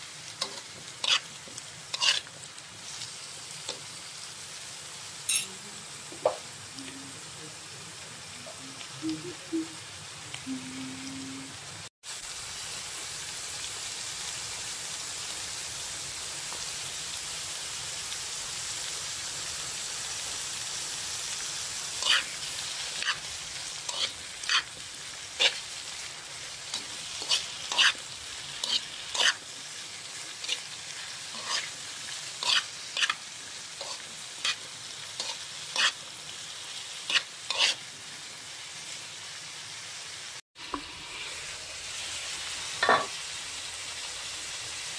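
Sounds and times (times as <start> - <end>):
vegetables sizzling in a wok: 0.0 - 44.9
spatula scraping a wok: 0.4 - 3.9, 21.3 - 36.1, 37.0 - 37.9.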